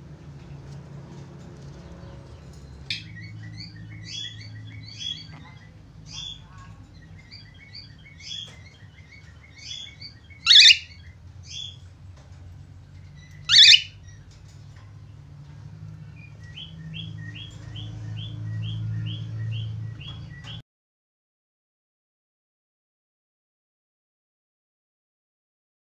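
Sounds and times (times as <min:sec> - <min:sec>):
cockatiel chirping: 0:09.6 - 0:11.0, 0:13.4 - 0:14.0.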